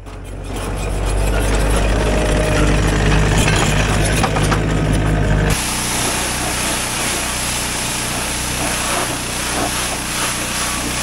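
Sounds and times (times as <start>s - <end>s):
small engine running: 0.0s - 11.0s
diesel engine idling: 0.8s - 10.4s
pressure washer spraying hiss: 5.6s - 11.0s.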